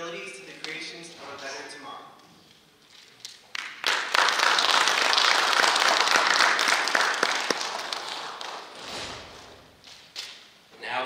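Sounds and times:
audience applauding: 3.4s - 8.8s.

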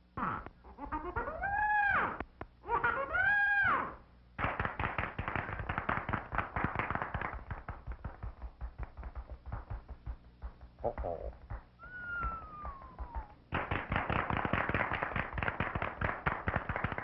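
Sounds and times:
rapid crackling clicks: 4.4s - 17.0s.

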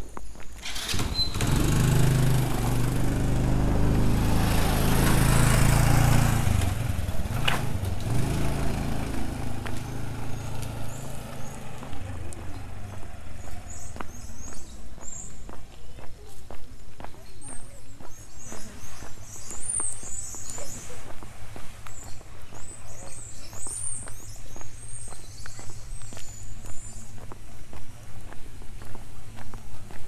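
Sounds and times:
small engine running: 0.6s - 12.8s.

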